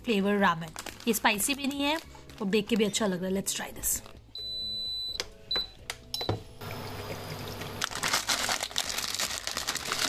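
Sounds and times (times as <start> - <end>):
plastic packet crinkling: 0.2 - 3.0, 7.8 - 10.0.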